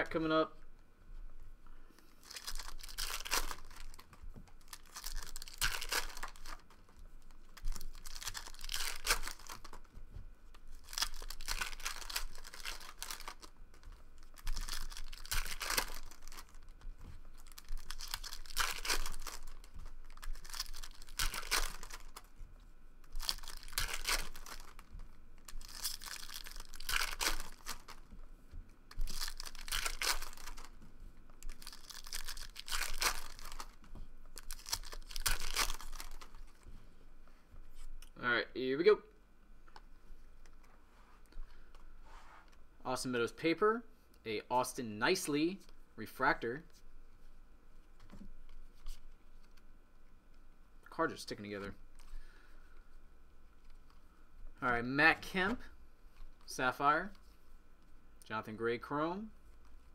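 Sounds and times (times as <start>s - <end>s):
foil wrappers tearing and crinkling: 2.2s - 9.9s, 10.7s - 22.3s, 23.0s - 28.1s, 28.9s - 30.7s, 31.4s - 36.6s.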